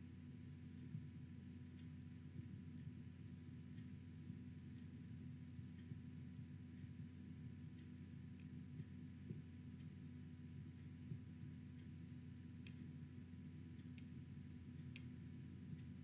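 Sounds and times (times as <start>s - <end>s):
low electrical hum: 0.0s - 16.0s
faint click: 7.8s - 8.6s, 12.6s - 12.9s, 13.8s - 14.2s, 14.8s - 15.2s.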